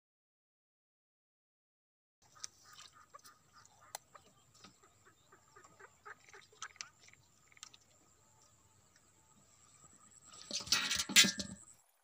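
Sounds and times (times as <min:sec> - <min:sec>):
chickens clucking: 0:02.3 - 0:07.8.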